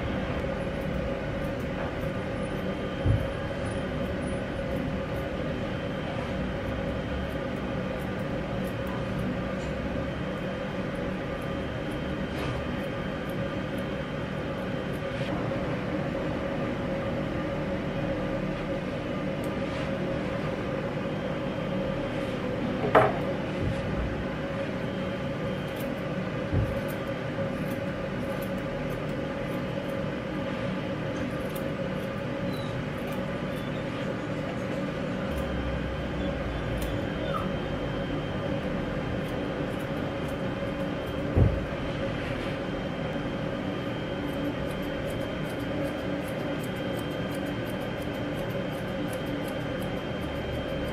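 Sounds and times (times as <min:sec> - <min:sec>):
steady electric hum: 0:00.0 - 0:50.9
scissors snipping: 0:00.4 - 0:03.3, 0:25.7 - 0:30.1, 0:31.1 - 0:33.6, 0:36.7 - 0:37.4, 0:39.2 - 0:41.4, 0:44.2 - 0:50.9.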